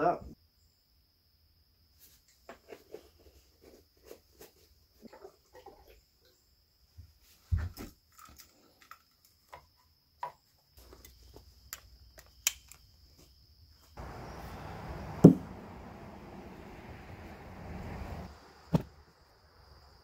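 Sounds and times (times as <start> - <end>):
hammer striking log: 15.2 - 15.5.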